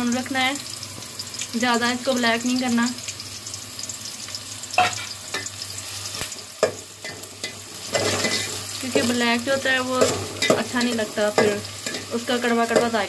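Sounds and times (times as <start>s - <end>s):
onions sizzling in hot oil: 0.0s - 13.0s
spoon scraping a steel pot: 7.4s - 8.6s.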